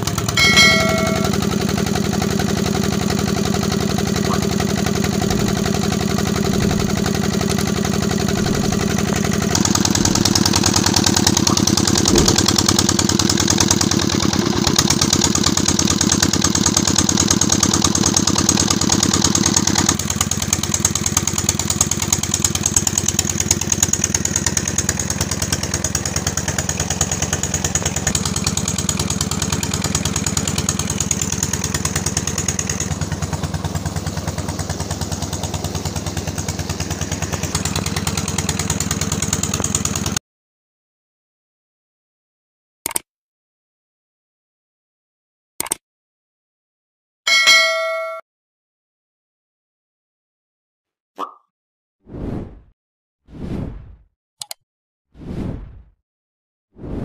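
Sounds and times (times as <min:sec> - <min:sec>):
diesel engine running: 0:00.0 - 0:40.2.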